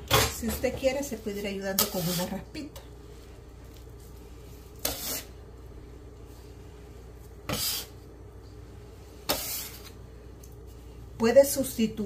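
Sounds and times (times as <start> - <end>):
faint steady hum: 0.0 - 12.0
bench scraper scraping dough: 1.8 - 2.4, 4.8 - 5.4, 7.5 - 8.0, 9.2 - 10.0.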